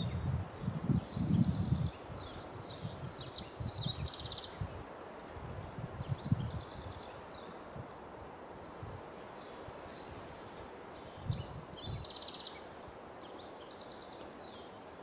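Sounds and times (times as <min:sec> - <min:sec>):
songbird singing with trills: 0:00.0 - 0:04.8, 0:08.7 - 0:14.7
background hiss: 0:00.0 - 0:15.0.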